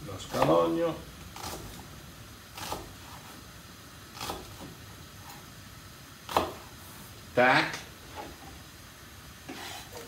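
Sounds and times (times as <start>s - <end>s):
steady low hiss: 0.0s - 10.0s.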